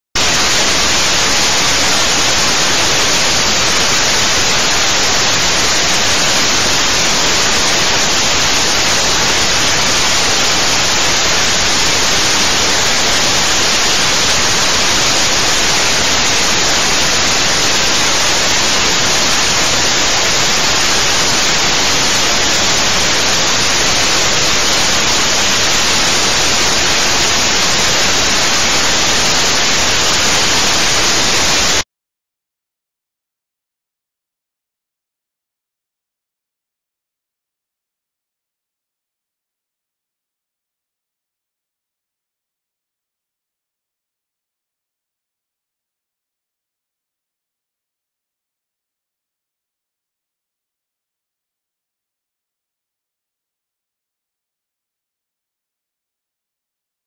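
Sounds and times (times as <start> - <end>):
static-like hiss: 0.2 - 31.8.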